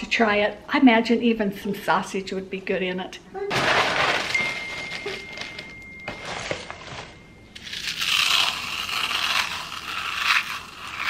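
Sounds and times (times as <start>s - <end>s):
corn flakes crunching: 7.6s - 11.0s.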